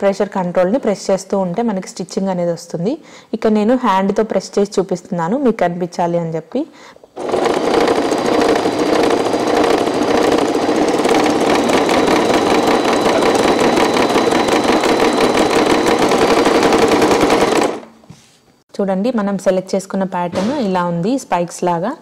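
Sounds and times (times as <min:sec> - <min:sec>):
sewing machine stitching: 0:07.2 - 0:18.0.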